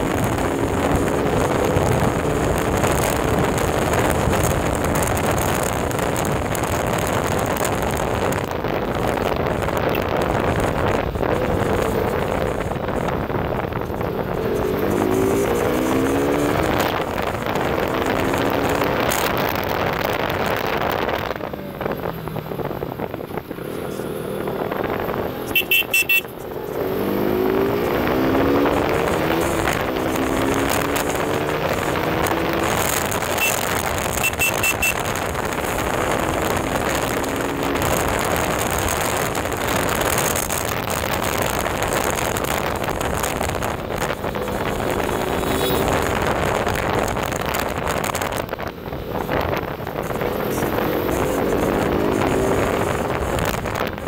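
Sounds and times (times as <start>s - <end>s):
motorcycle engine accelerating: 0.0s - 54.0s
horn toots: 25.4s - 26.3s, 33.2s - 35.3s, 45.0s - 46.0s.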